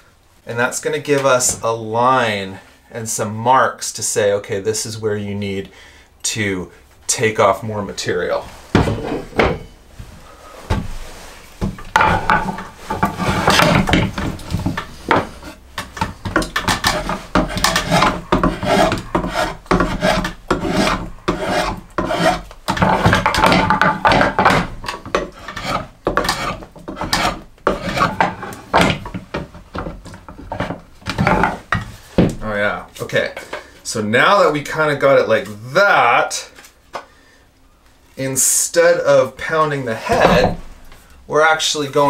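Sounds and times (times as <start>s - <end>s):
rasp filing wood: 12.0s - 29.2s.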